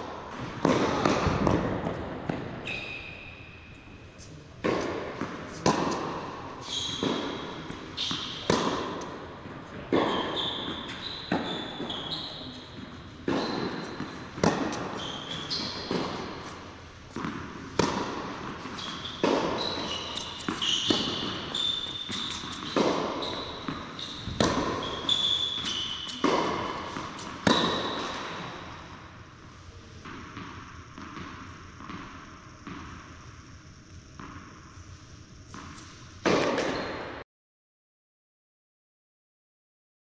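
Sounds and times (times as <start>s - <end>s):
racket striking ball: 0.3s - 2.6s, 4.6s - 29.1s, 30.0s - 33.1s, 35.5s - 37.1s
tennis ball bouncing: 0.3s - 2.6s, 4.6s - 29.1s, 30.0s - 33.3s, 34.1s - 34.7s, 35.5s - 37.1s
shoes squeaking on court: 0.6s - 6.0s, 6.6s - 29.1s, 35.0s - 37.2s.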